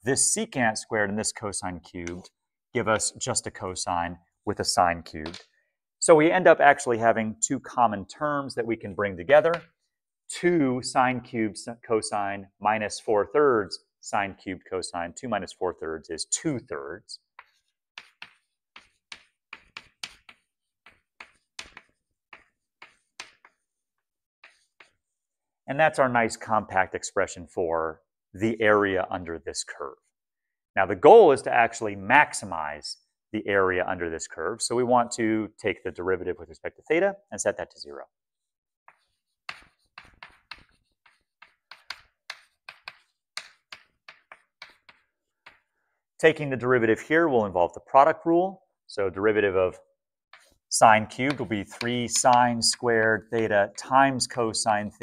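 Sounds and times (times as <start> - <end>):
chalk tapping and scratching on blackboard: 17.2 - 25.4, 38.4 - 45.8, 50.3 - 55.0.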